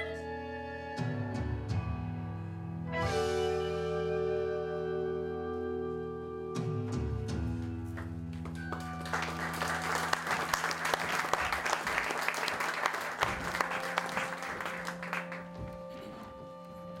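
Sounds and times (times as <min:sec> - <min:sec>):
held notes of accompaniment music: 0:00.0 - 0:17.0
audience applauding: 0:08.0 - 0:15.6.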